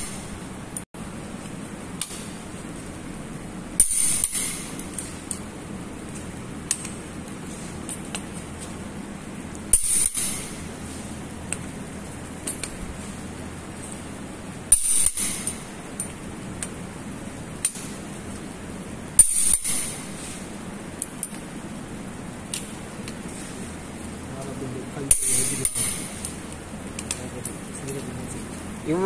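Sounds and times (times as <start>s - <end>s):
torque wrench clicks: 3.8s - 5.5s, 6.1s - 8.4s, 9.5s - 10.7s, 11.5s - 12.9s, 14.7s - 16.8s, 19.2s - 20.0s, 25.0s - 28.1s.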